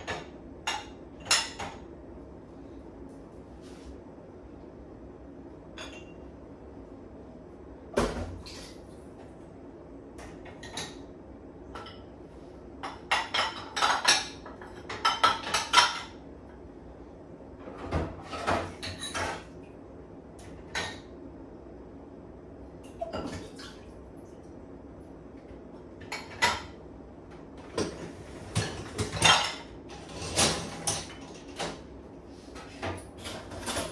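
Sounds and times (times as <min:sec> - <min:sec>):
dishes clinking in dishwasher rack: 0:00.0 - 0:01.9, 0:05.7 - 0:06.3, 0:10.2 - 0:11.1, 0:12.8 - 0:16.2, 0:17.6 - 0:19.6, 0:20.4 - 0:21.1, 0:22.9 - 0:23.8, 0:26.0 - 0:26.8, 0:27.6 - 0:31.9, 0:32.6 - 0:33.9.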